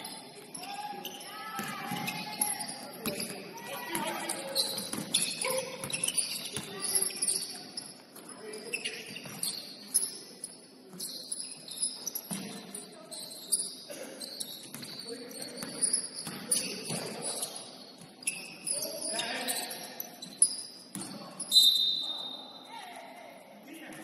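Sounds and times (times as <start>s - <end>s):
shoes squeaking on hardwood floor: 0.0s - 22.2s
basketball bouncing: 1.6s - 2.2s.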